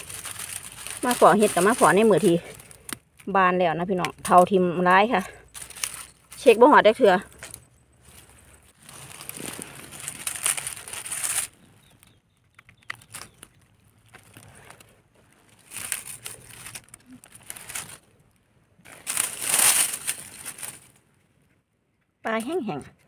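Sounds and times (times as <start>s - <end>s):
dry leaves crunching and rustling: 0.0s - 3.0s, 4.2s - 12.0s, 12.8s - 21.0s.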